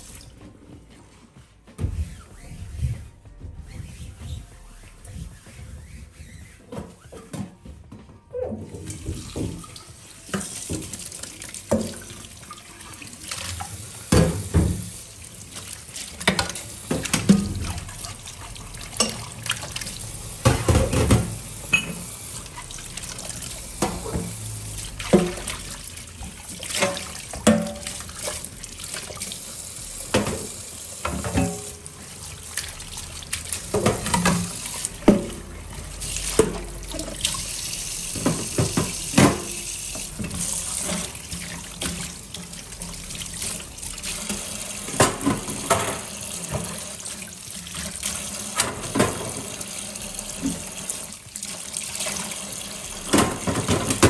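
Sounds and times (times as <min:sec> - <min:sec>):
water splashing off dishes: 0:08.9 - 0:54.0
dishes knocking and clinking: 0:20.4 - 0:22.0.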